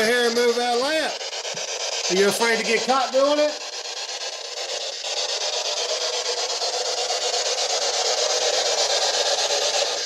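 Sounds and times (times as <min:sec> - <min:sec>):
chopped radio static: 0:00.0 - 0:03.7.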